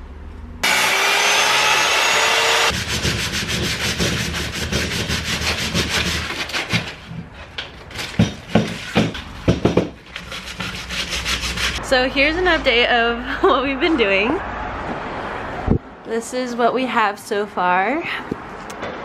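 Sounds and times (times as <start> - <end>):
electric miter saw cutting wood: 0.6 - 3.0
sandpaper rubbing wooden blocks: 2.7 - 7.1, 8.0 - 11.8
sharp wooden knocks: 8.1 - 10.0.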